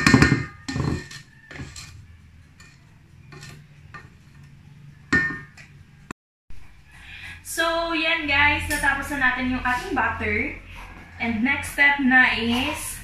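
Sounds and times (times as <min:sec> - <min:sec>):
spatula scraping metal bowl: 0:00.0 - 0:05.5.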